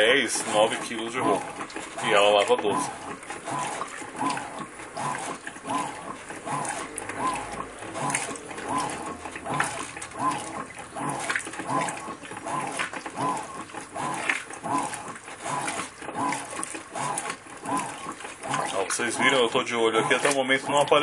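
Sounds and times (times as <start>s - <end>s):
churning water: 0.0s - 21.0s
washing machine agitator whine: 0.0s - 21.0s.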